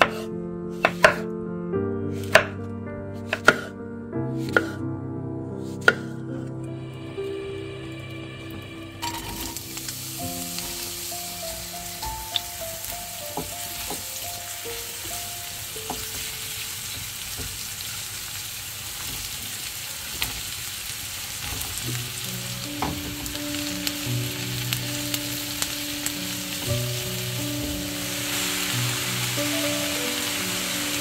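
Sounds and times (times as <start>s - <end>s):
soft background music: 0.0s - 17.0s, 21.6s - 31.0s
food sizzling in oil: 7.1s - 31.0s.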